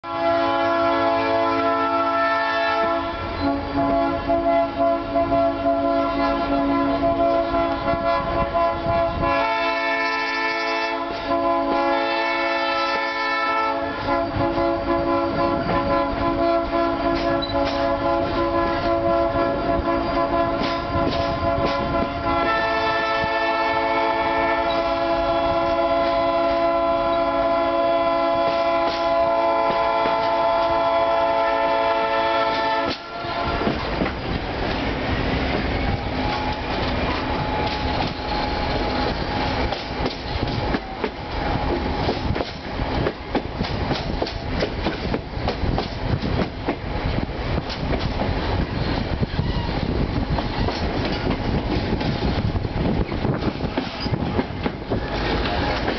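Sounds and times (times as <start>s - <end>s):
locomotive horn chords: 0.0s - 34.0s
train wheels clacking on rails: 14.0s - 23.8s, 28.3s - 31.0s, 31.6s - 55.9s.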